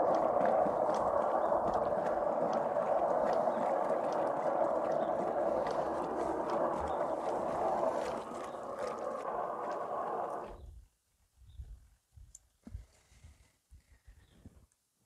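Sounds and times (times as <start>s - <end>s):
clothes churning in water: 0.0s - 10.5s
washing machine motor running: 0.0s - 10.5s.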